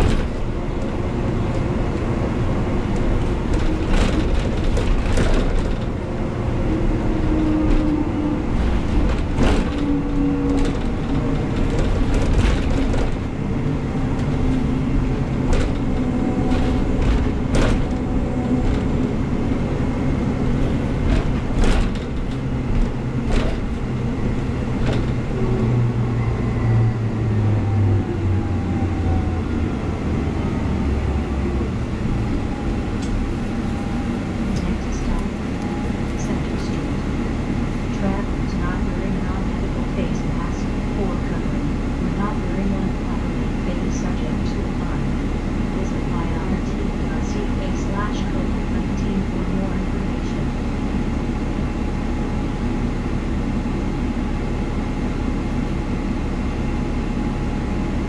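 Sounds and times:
bus engine and road drone: 0.0s - 58.0s
knocks and rattles: 8.6s - 13.3s, 20.6s - 25.2s.

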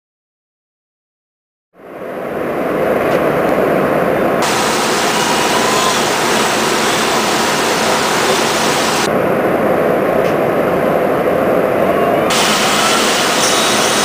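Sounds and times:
loud hissing noise: 4.4s - 9.3s, 12.3s - 14.0s
tool grinder running: 12.4s - 14.0s.

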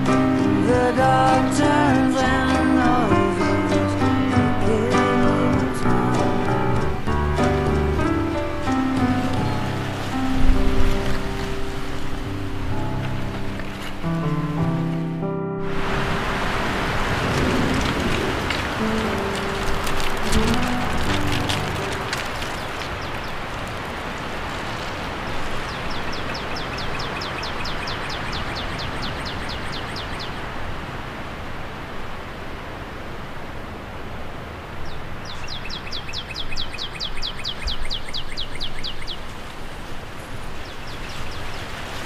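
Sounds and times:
wind: 0.0s - 42.0s
songbird trilling: 25.6s - 30.5s, 34.8s - 39.3s.

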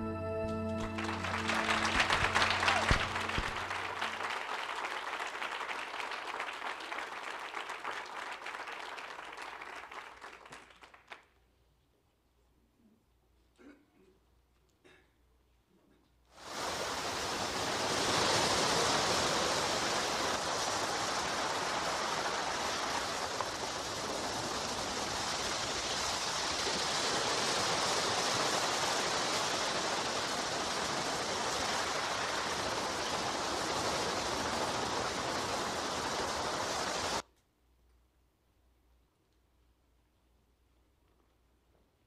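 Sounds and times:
ocean surf: 0.8s - 4.9s, 16.4s - 37.2s.

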